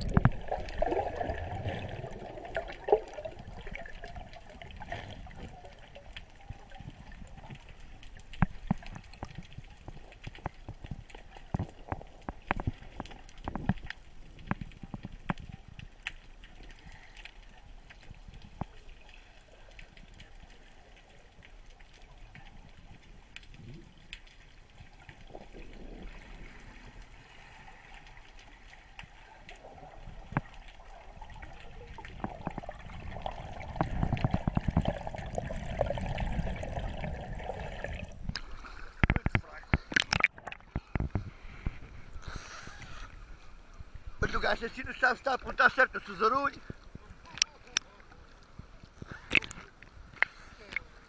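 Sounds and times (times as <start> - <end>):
muffled underwater clicks: 0.0 - 1.3, 2.2 - 19.1, 28.0 - 43.2, 46.6 - 48.2, 48.9 - 50.9
underwater rush and bubbling: 0.0 - 44.2
faint water noise: 0.0 - 51.0.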